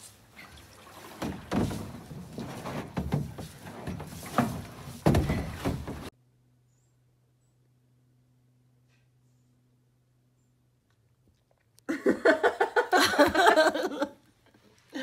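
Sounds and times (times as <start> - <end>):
kayak scraping: 0.0 - 6.1
dull thumps: 1.0 - 6.1.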